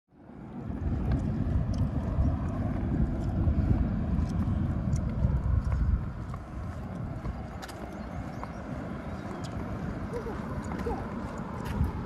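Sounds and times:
wind buffeting microphone: 0.2 - 12.0
footsteps on concrete: 0.8 - 12.0.

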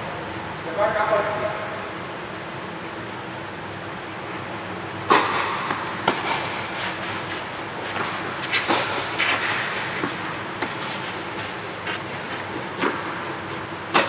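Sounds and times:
tennis ball bouncing on court: 5.0 - 6.9, 7.9 - 11.0
tennis ball struck by rackets: 5.0 - 7.0, 7.9 - 11.0.

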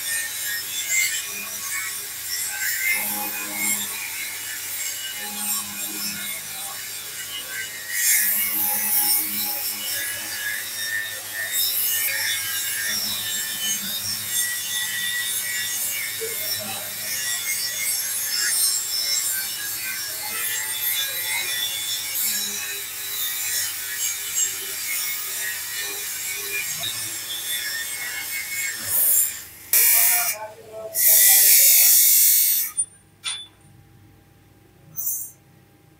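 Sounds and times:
steel scraping and rasping: 10.0 - 33.6, 34.9 - 35.4.

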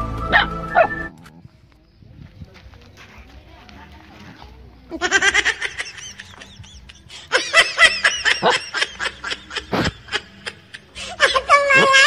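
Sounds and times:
person giggling: 4.9 - 12.0
person laughing: 4.9 - 12.0.

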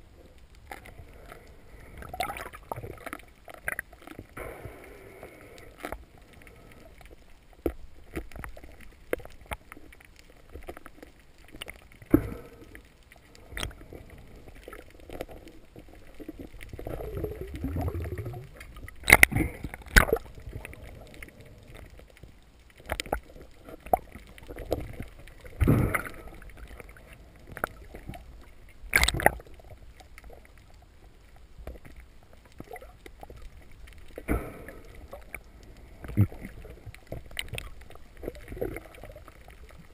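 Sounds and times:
muffled underwater water noise: 0.0 - 39.9.

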